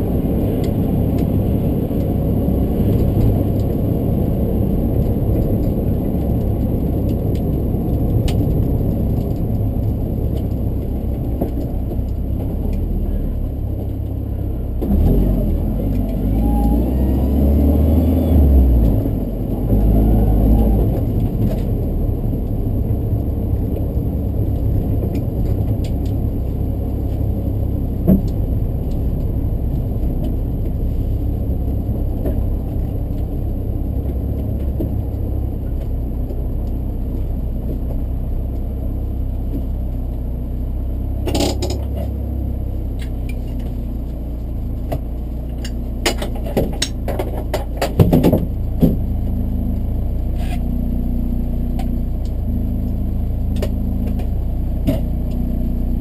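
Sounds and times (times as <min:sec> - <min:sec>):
car engine drone from cabin: 0:00.0 - 0:56.0
sharp clicks and knocks: 0:41.2 - 0:42.2, 0:43.0 - 0:49.3.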